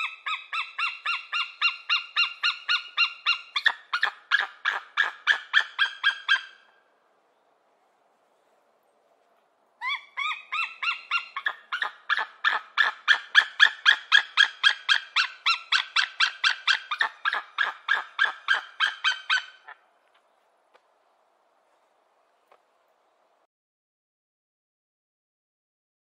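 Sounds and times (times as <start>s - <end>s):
eagle yelping calls: 0.0s - 6.8s, 9.8s - 19.9s.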